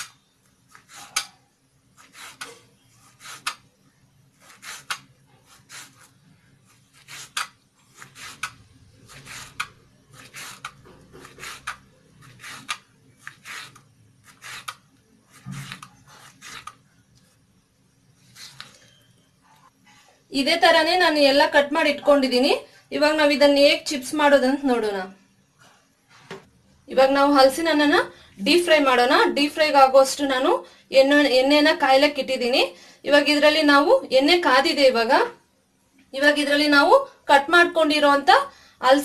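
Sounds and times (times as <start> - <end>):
knife slicing on cutting board: 2.0 - 3.6, 4.4 - 16.8.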